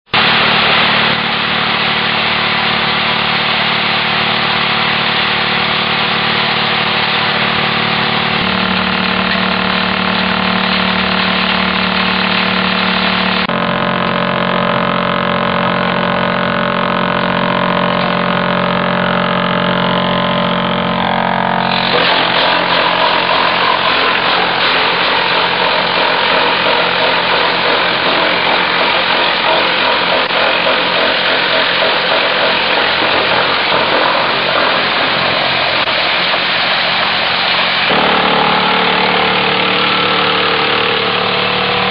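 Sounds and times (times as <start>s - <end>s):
wood chipper running: 0.1s - 41.9s.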